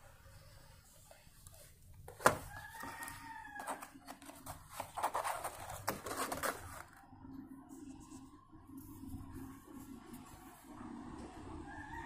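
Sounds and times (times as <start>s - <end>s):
cardboard boxes rustling and clicking: 2.1s - 7.0s
rooster crowing: 2.4s - 4.2s, 11.6s - 12.0s.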